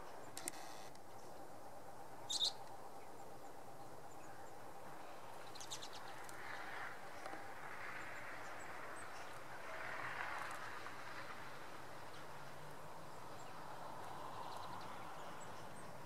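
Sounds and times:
songbirds short high calls: 2.3s - 2.6s.

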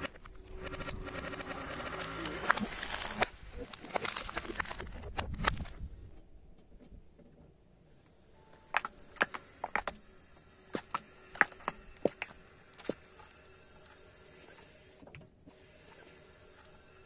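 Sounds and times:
plastic tubes cracking and popping: 0.0s - 5.8s, 8.7s - 10.0s
stones crunching under tyre: 0.9s - 5.8s.

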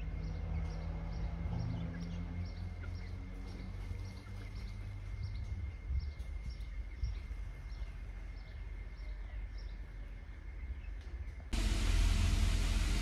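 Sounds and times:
birds chirping: 0.0s - 13.0s
low steady rumble: 11.4s - 13.0s.

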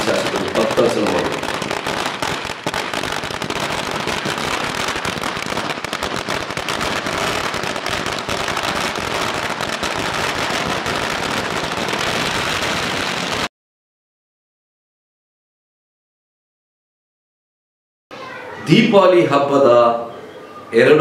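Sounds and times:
firecrackers bursting: 0.0s - 13.5s.

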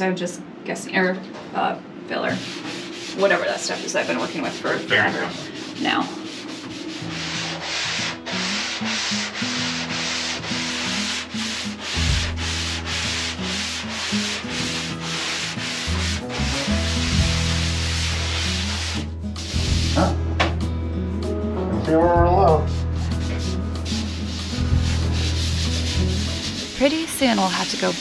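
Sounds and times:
hand sanding strokes: 2.3s - 20.0s, 22.6s - 28.0s.

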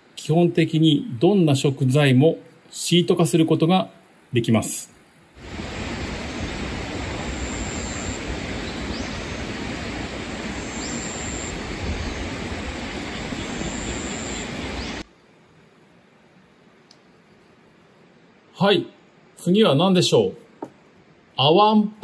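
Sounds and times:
steady rushing outdoor noise: 5.3s - 15.2s.

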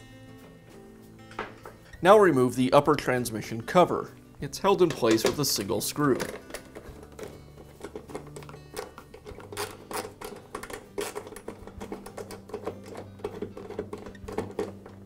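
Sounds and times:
screwdriver clicks and knocks: 4.9s - 15.0s.

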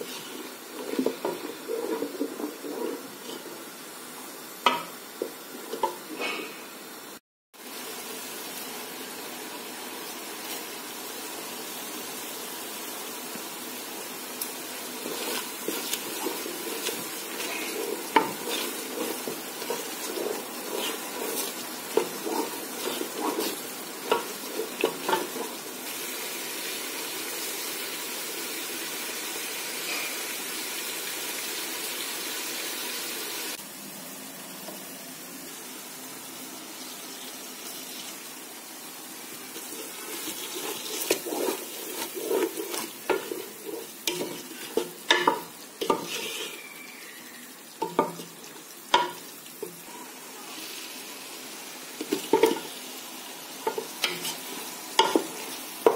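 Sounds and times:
spoon stirring and scraping pot: 0.0s - 3.7s, 4.7s - 6.4s, 14.4s - 25.7s, 39.5s - 49.8s, 52.0s - 52.8s, 53.6s - 55.9s
gravy sizzling in a metal pot: 0.0s - 55.9s.

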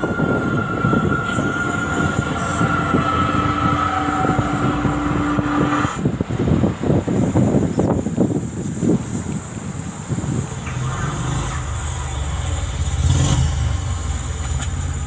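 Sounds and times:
drivetrain whine and hum: 0.0s - 6.4s
vehicle rumbling and rattling: 0.0s - 15.0s.

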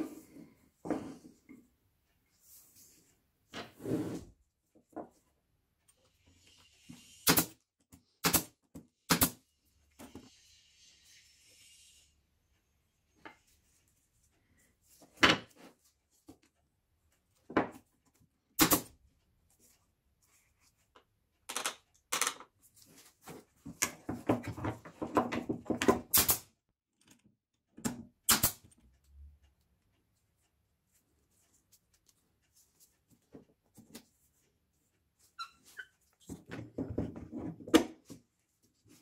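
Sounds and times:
brad nailer firing: 18.6s - 18.9s.

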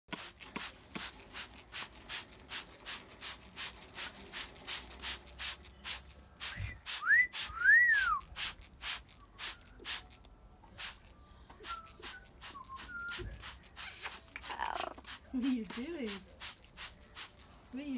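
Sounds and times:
spray bottle squirting: 0.1s - 17.4s
short loud whistles: 6.6s - 8.2s.

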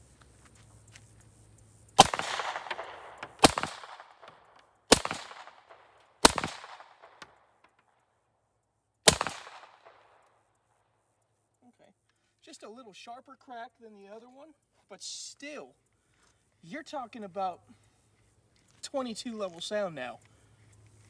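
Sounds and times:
suppressed pistol shots: 2.0s - 7.5s, 9.0s - 10.3s.

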